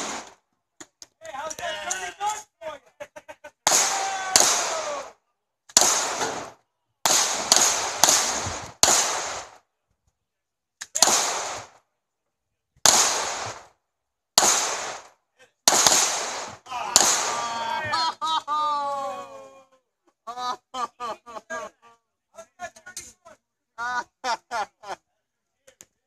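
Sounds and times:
pistol shots: 0.0s - 0.4s, 3.6s - 5.0s, 5.7s - 9.6s, 10.9s - 11.8s, 12.8s - 13.7s, 14.4s - 15.1s, 15.7s - 17.7s.

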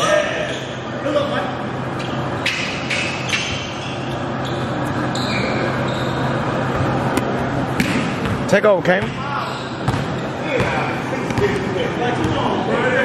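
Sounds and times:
steady low hum: 0.0s - 13.0s
sneakers squeaking on gym floor: 0.3s - 0.9s, 2.5s - 7.0s, 7.8s - 11.6s.

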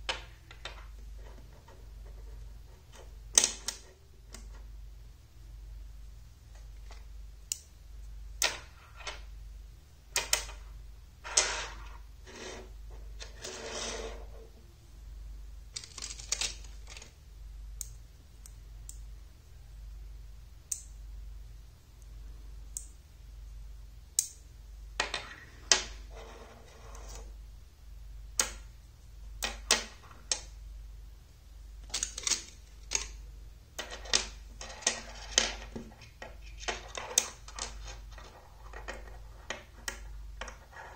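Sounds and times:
steady low hum: 0.0s - 40.9s.

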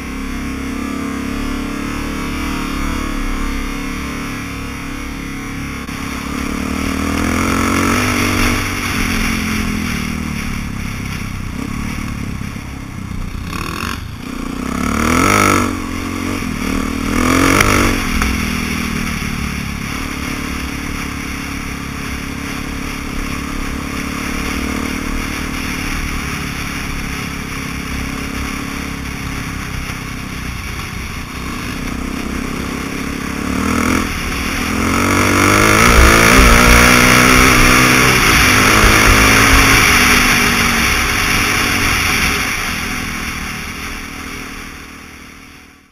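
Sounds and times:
motorcycle engine revving: 0.0s - 45.9s.

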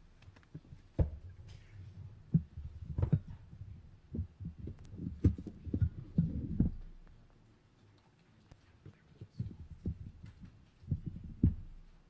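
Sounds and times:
low thuds and knocks: 0.6s - 1.4s, 2.2s - 7.0s, 9.4s - 12.0s.

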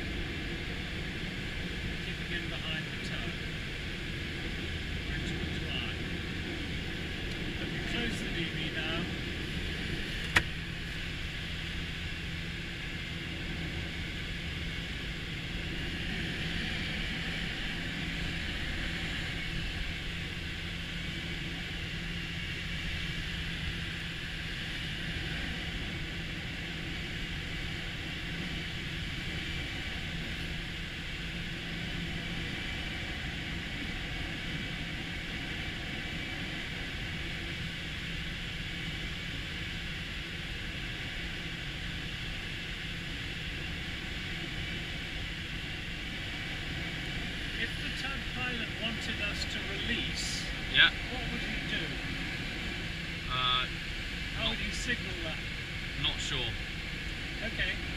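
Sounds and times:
aeroplane engine drone: 0.0s - 57.9s
airflow rushing around canopy: 0.0s - 57.9s.

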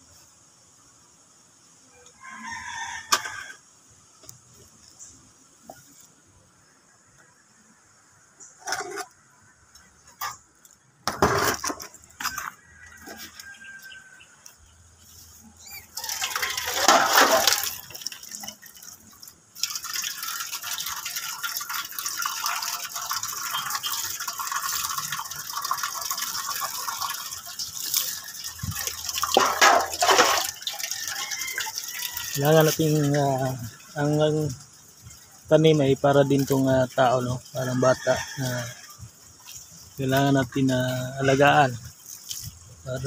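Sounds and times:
water spraying on plants: 13.0s - 43.0s
water splashing: 15.4s - 43.0s.

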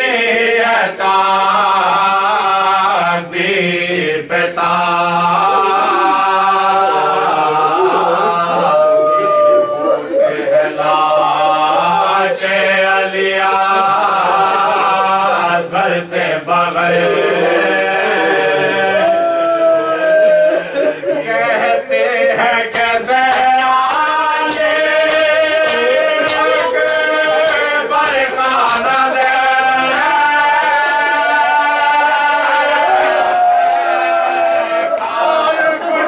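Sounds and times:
men chanting unaccompanied: 0.0s - 36.0s.

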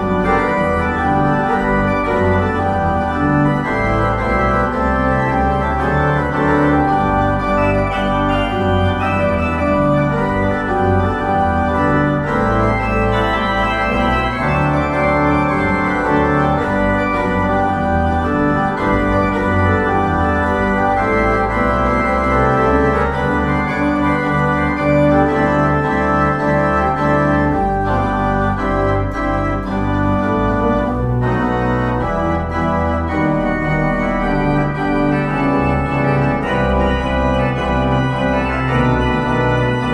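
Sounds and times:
church organ chords: 0.0s - 39.9s.

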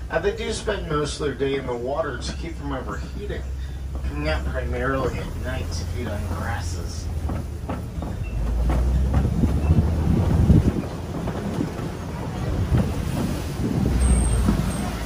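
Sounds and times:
truck knocking and rattling: 0.0s - 15.0s
truck rumbling: 0.0s - 15.0s
wind buffeting microphone: 6.3s - 15.0s.

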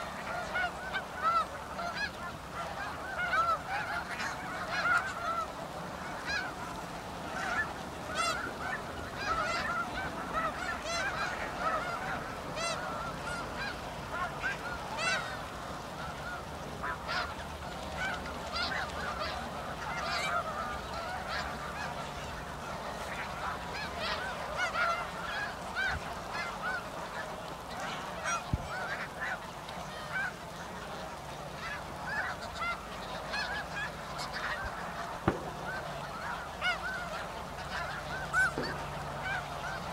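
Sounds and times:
geese honking: 0.0s - 39.9s
single knock: 35.2s - 35.5s.

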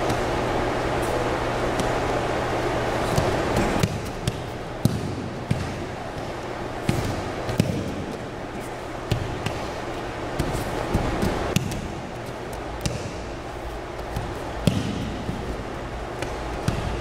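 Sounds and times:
steady low hum: 0.0s - 17.0s
thuds and slaps on a mat: 3.1s - 8.2s, 9.1s - 13.3s, 14.0s - 17.0s.

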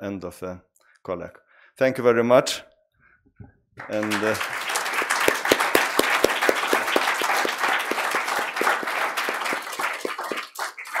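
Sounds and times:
audience applauding: 3.8s - 11.0s
close hand claps: 3.8s - 11.0s.

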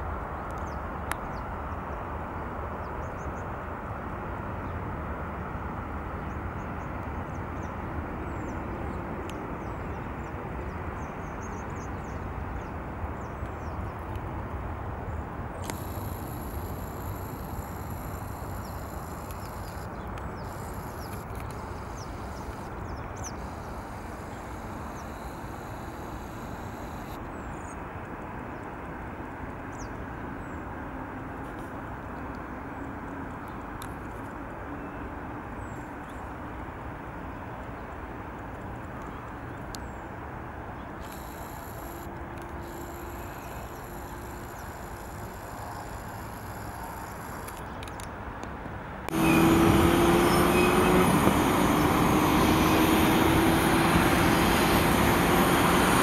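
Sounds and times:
distant airport traffic rumble: 0.0s - 56.0s
faint chirps: 15.6s - 27.2s, 41.0s - 47.6s
high steady whine: 15.6s - 27.2s, 41.0s - 47.8s, 49.1s - 56.0s.

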